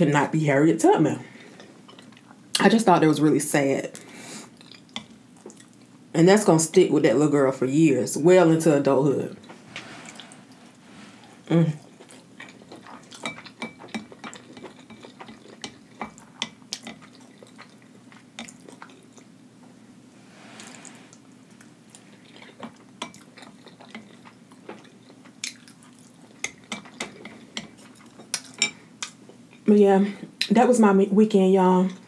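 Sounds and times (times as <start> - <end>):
noodles being chewed: 11.8 - 19.3, 21.5 - 29.6.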